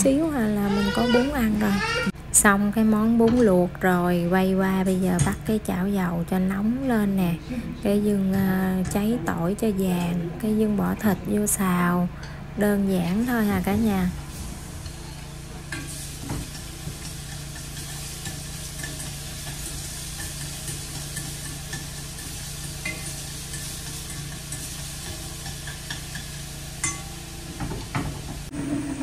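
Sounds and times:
meat sizzling in oil: 0:14.4 - 0:29.0.

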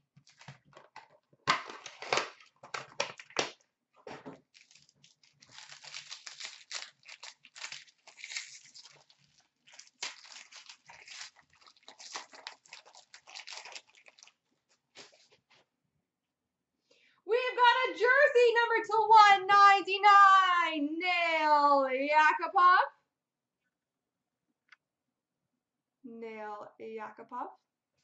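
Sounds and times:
packaging ripping: 0:00.2 - 0:00.8, 0:01.5 - 0:03.6, 0:04.4 - 0:14.4, 0:15.0 - 0:15.4
foil wrapper crinkling and tearing: 0:00.2 - 0:00.9, 0:01.6 - 0:03.6, 0:04.4 - 0:15.4.

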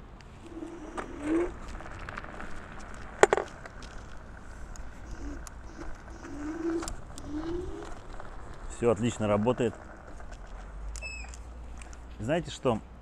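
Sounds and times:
faint steady whine: 0:00.0 - 0:12.3
pigeons cooing: 0:00.4 - 0:01.6, 0:03.8 - 0:09.6.

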